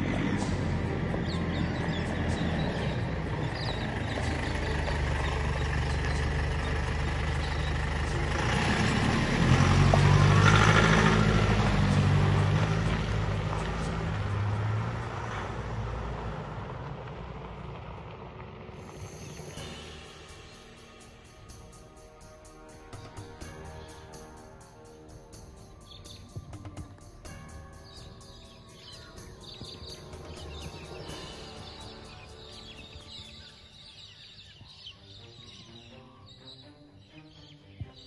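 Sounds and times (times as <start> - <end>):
large vehicle engine droning: 0.0 - 33.9.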